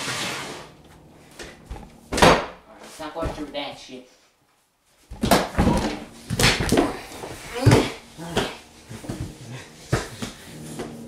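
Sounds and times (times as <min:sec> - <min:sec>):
bodies thudding on hard floor: 0:01.3 - 0:02.6, 0:05.1 - 0:11.0
people grunting: 0:05.5 - 0:10.3.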